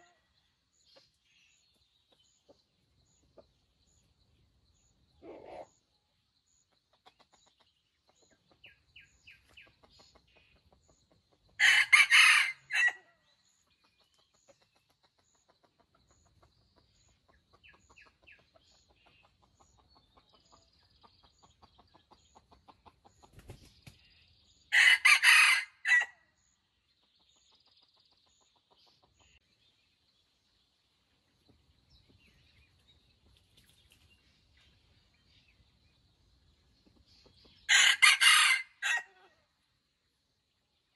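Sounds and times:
faint clucks: 6.6s - 11.6s, 13.7s - 24.0s, 27.2s - 29.4s
rooster crowing: 11.6s - 13.0s, 24.7s - 26.1s, 37.7s - 39.2s.

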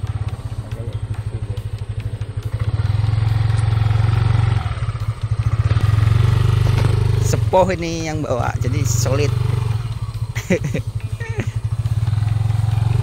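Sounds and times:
scooter engine running: 0.0s - 13.0s.

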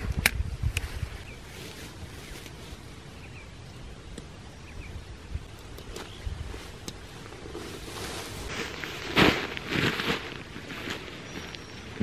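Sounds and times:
tent poles clicking: 5.5s - 7.9s.

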